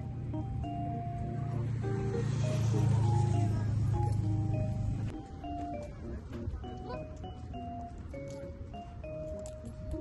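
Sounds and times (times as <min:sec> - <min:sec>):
gentle instrumental melody: 0:00.0 - 0:10.0.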